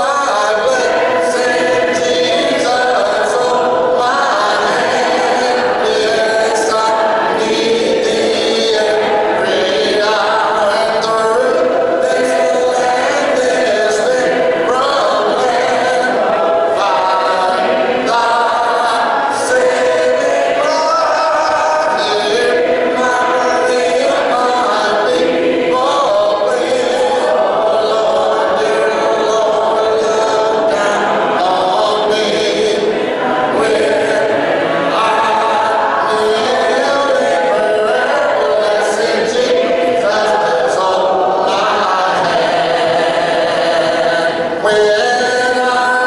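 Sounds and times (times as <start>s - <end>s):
congregation singing a hymn: 0.0s - 46.0s.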